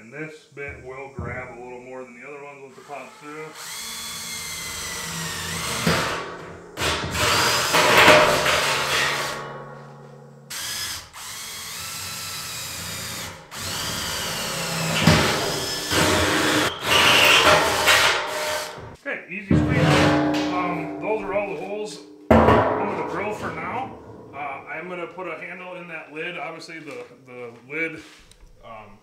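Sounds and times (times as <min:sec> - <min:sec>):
cordless drill cutting steel: 0:02.7 - 0:06.2, 0:06.8 - 0:07.8, 0:10.5 - 0:18.8.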